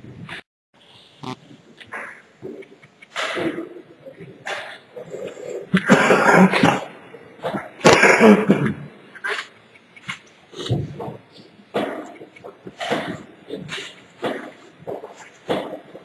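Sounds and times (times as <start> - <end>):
throat sounds: 1.2 - 16.0
person coughing: 7.8 - 8.8.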